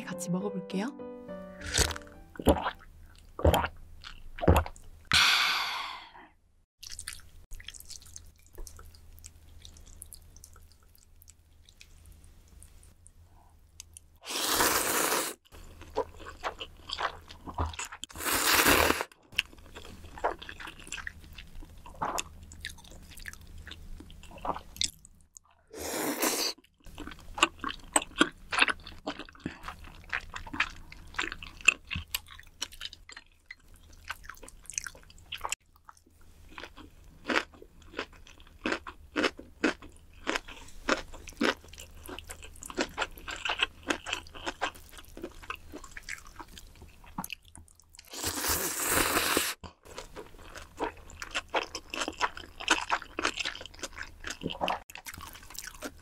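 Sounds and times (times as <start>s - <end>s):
chewing with mouth clicks: 26.8s - 48.2s, 49.6s - 56.0s.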